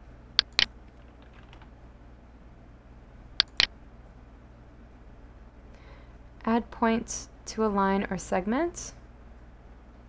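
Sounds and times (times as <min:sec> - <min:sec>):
faint low hum: 0:00.0 - 0:10.0
computer mouse clicking: 0:00.4 - 0:01.7, 0:03.4 - 0:03.7.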